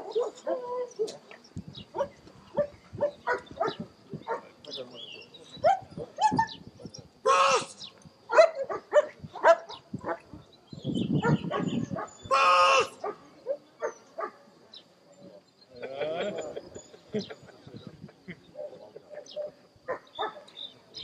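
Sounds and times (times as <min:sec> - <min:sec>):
dog barking: 0:00.0 - 0:01.2, 0:02.0 - 0:04.5, 0:08.3 - 0:10.2, 0:11.2 - 0:12.1, 0:13.0 - 0:14.4, 0:19.9 - 0:20.5.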